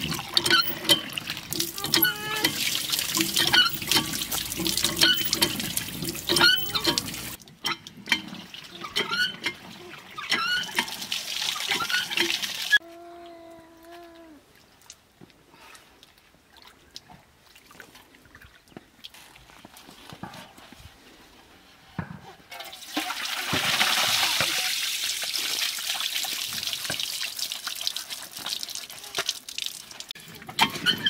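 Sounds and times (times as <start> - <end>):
drawn-out animal call: 0.0 - 7.4
running splashing water: 0.0 - 7.4, 9.8 - 12.8, 22.6 - 30.2.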